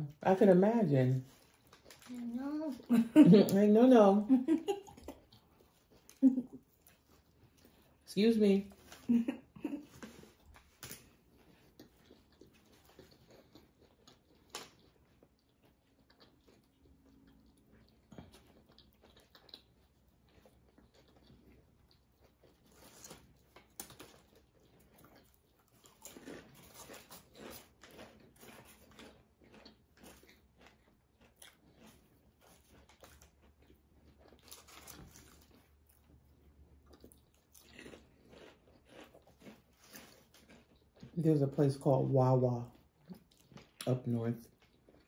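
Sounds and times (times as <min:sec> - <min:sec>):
chewing and crunching chips: 0:00.0 - 0:45.0.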